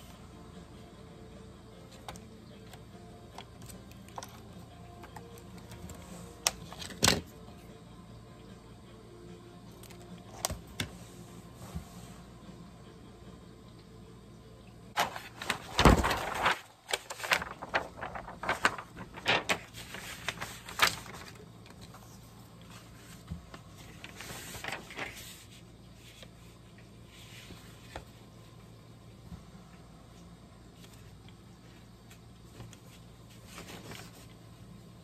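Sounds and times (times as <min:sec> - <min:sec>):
card rustling and scraping: 0:15.0 - 0:26.5.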